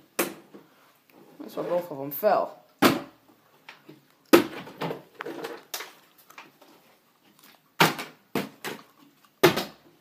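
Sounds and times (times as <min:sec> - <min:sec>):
plastic bottles thudding on floor: 0:03.9 - 0:06.0, 0:07.8 - 0:10.0.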